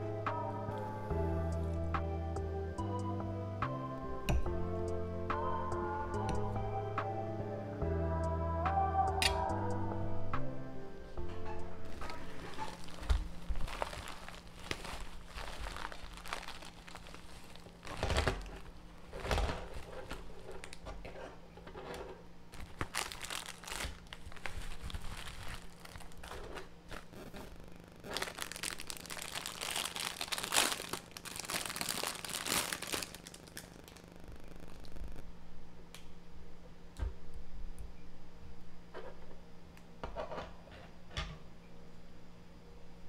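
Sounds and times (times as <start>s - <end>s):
bubble wrap crinkling: 11.8s - 21.2s, 22.5s - 35.3s.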